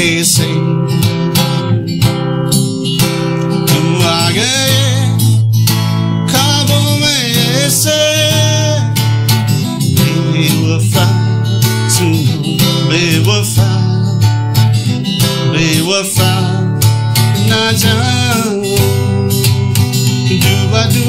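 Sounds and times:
man singing: 0.0 - 2.0, 3.4 - 21.0
acoustic guitar strumming chords: 0.0 - 21.0.

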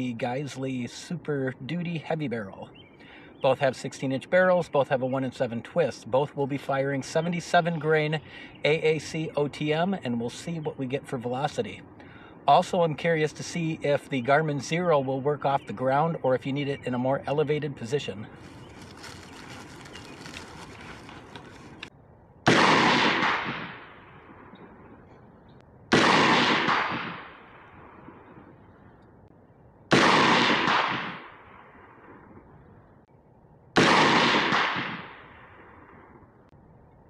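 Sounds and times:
rifle shots: 22.5 - 24.6, 25.9 - 28.4, 29.9 - 32.2, 33.8 - 35.9.

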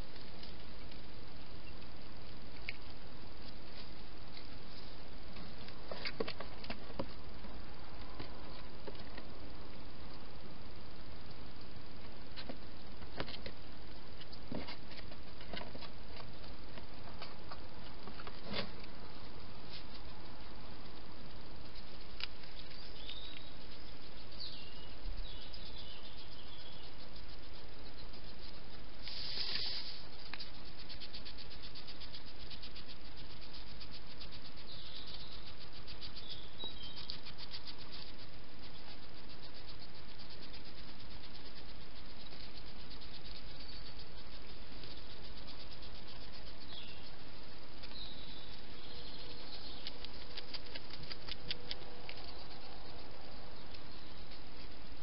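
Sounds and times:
steady outdoor hiss: 0.0 - 55.0
fine rapid ticks: 11.2 - 55.0
faint high chirps: 21.7 - 55.0.

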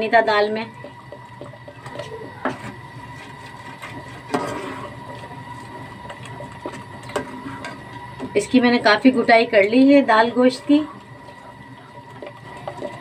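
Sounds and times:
steady high hum: 0.0 - 13.0
metal ladle stirring in pot: 0.8 - 8.5
ladle knocking and scraping pot: 1.9 - 5.3.

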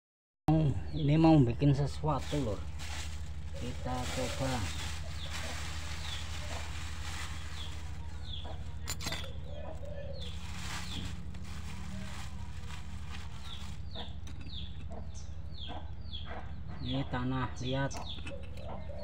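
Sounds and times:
chicks peeping: 0.9 - 19.0
plastic bag crinkling: 2.2 - 9.4, 10.2 - 14.8.

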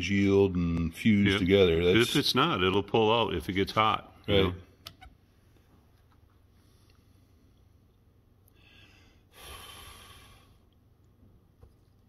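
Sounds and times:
soft breath through nose: 8.5 - 10.8.

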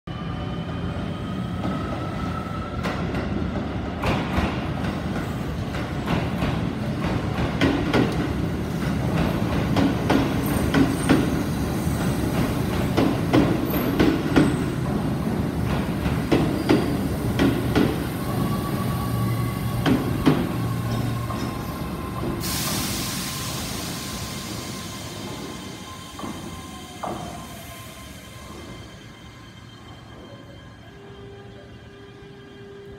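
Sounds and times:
hissing air burst: 22.3 - 25.9.

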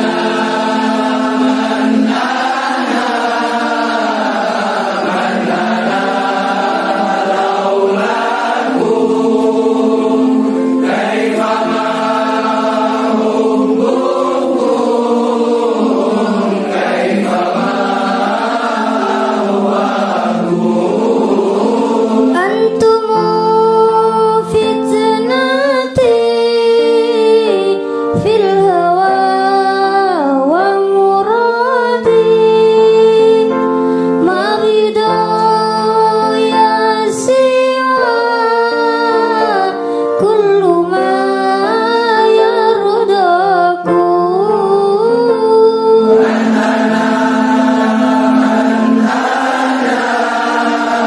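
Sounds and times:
sustained instrumental backing: 0.0 - 23.9, 45.1 - 51.0
person singing devotional song: 0.0 - 51.0.

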